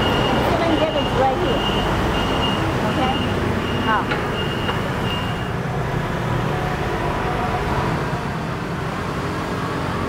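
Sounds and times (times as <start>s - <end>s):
high electronic beep: 0.0s - 5.6s
traffic rumble: 0.0s - 10.0s.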